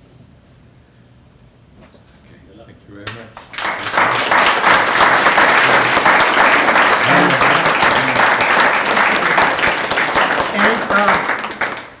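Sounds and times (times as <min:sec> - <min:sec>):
audience applauding: 0:03.4 - 0:12.0
faint voices: 0:05.4 - 0:09.7.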